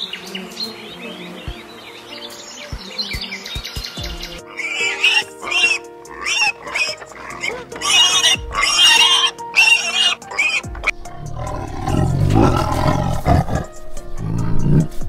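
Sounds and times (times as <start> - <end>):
background music: 0.0 - 15.0
piglet squealing: 4.4 - 14.9
tiger growling: 4.5 - 15.0.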